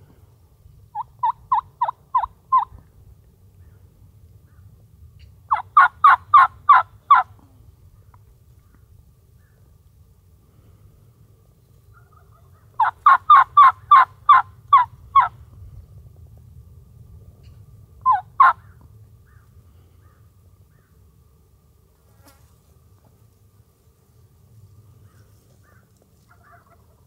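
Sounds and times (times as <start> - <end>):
turkey yelping: 0.9 - 2.8, 5.5 - 7.3, 11.9 - 15.4, 18.0 - 20.9, 25.1 - 27.0.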